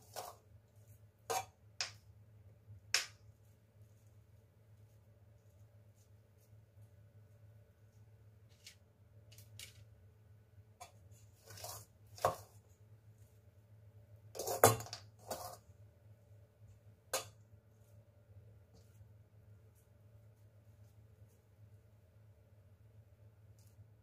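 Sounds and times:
metal spoon scraping a pot: 0.0 - 0.4, 11.4 - 12.5, 14.4 - 15.6
low steady hum: 0.0 - 24.0.

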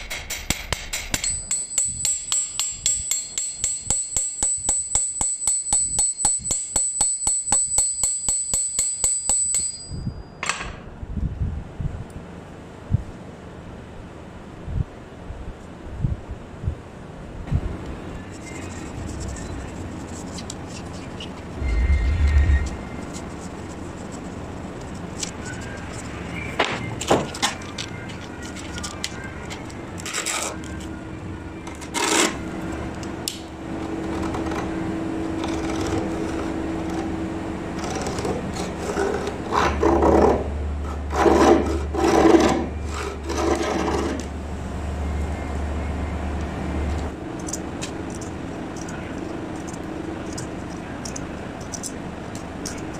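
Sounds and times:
hand tool knocking and scraping brass: 0.0 - 10.7
low hum: 21.5 - 24.3.

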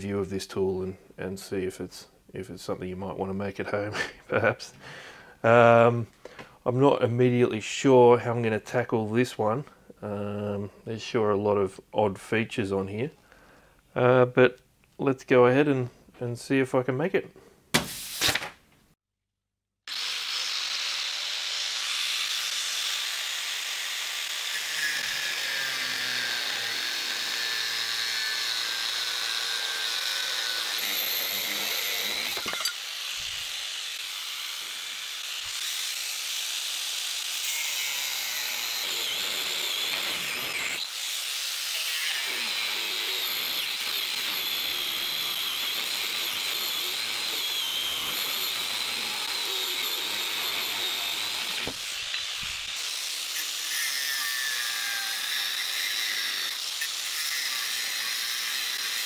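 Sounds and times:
angle grinder cutting steel: 19.9 - 59.0.

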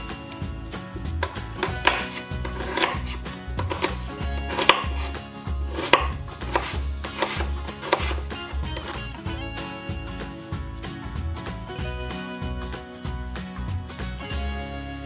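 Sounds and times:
knife cutting onion on board: 0.0 - 9.1.

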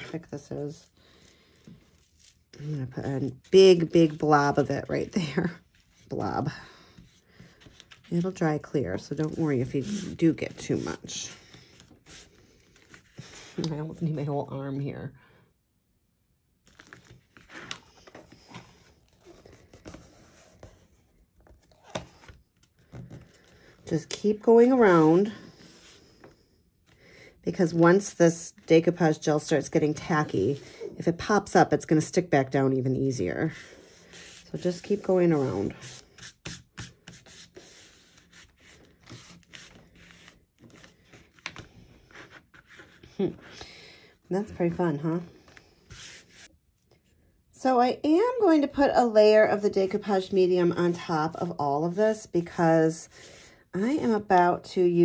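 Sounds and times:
paper rustling and scuffing: 1.4 - 13.6, 16.7 - 23.6, 33.4 - 43.1, 45.8 - 46.5
paper scrape: 9.0 - 13.6, 33.4 - 41.2, 45.9 - 46.5
paper crinkles: 16.6 - 20.8.

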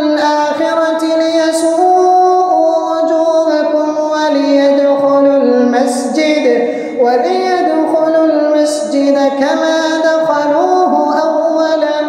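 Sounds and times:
man chanting: 0.0 - 12.0
man breathing: 6.6 - 7.0.

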